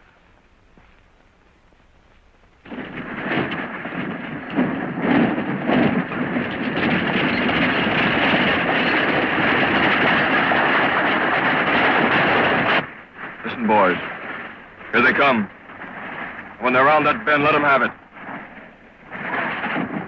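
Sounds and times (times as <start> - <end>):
horses galloping: 0.0 - 20.0
wagon wheels rattling: 2.6 - 12.8.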